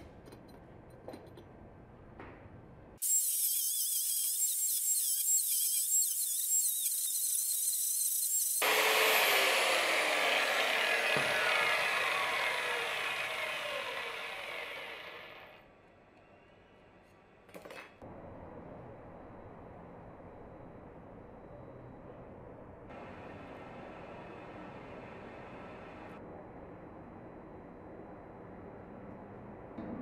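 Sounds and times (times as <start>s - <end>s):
angle grinder cutting metal: 3.0s - 15.6s.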